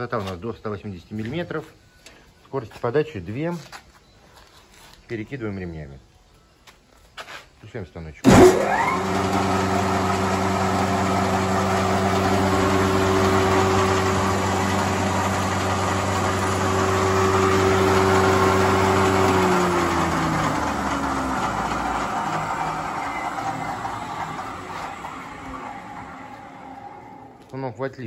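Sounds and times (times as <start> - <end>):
planer motor humming and whining: 8.3 - 27.5.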